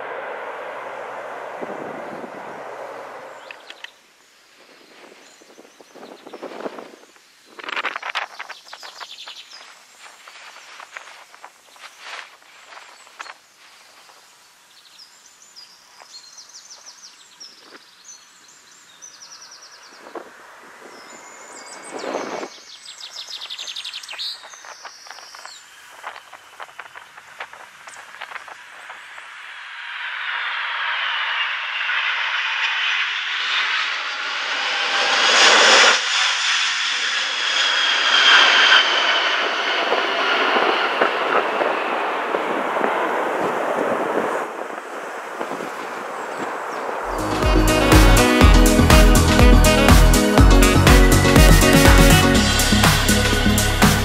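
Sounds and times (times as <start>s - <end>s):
jet engine roar: 0.0s - 3.9s, 26.6s - 54.0s
faint steady hiss: 0.0s - 29.8s
songbirds chirping: 3.2s - 7.6s, 8.3s - 28.6s.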